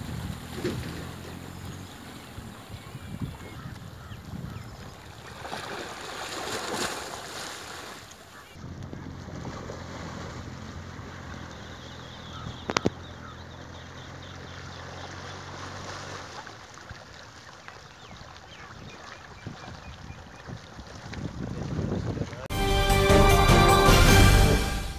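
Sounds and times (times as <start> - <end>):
wind buffeting microphone: 0.0 - 5.4, 18.0 - 22.5
river current washing against bank: 0.0 - 24.9.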